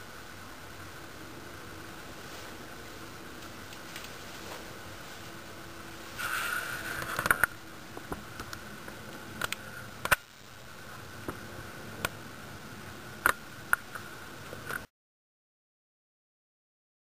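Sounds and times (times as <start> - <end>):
rush of noise: 0.0 - 14.9.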